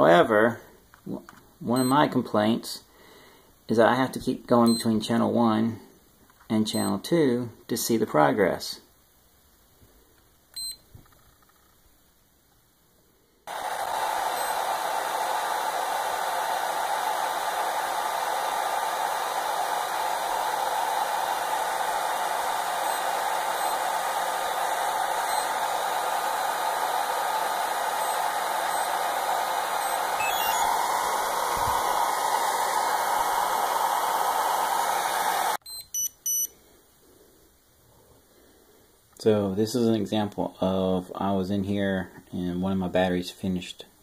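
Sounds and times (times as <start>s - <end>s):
cooling fan whirring: 13.5s - 35.6s
short electronic beeps: 30.2s - 30.7s, 35.6s - 36.5s.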